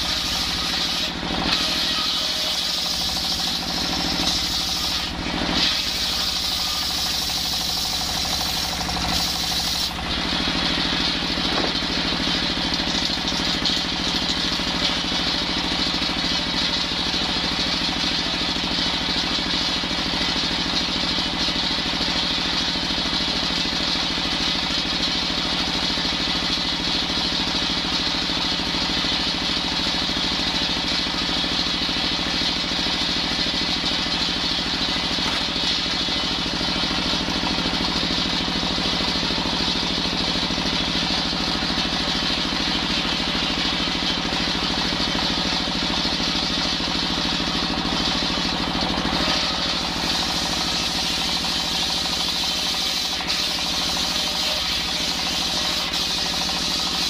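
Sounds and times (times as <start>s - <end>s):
circular saw blade spinning: 0.0s - 15.8s, 34.6s - 57.0s
diesel engine running: 0.0s - 57.0s.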